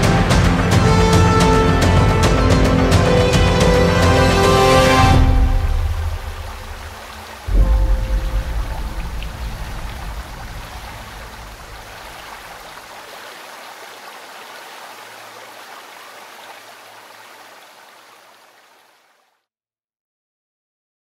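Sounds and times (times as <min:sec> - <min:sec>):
deep boom: 0:05.0 - 0:12.6
even rushing noise: 0:05.1 - 0:12.9.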